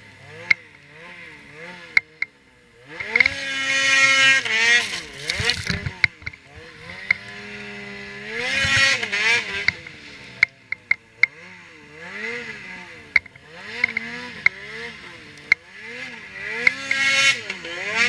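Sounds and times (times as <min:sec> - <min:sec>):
snowmobile engine revving: 0:00.0 - 0:18.0
sharp clicks: 0:04.9 - 0:07.4, 0:08.5 - 0:11.4.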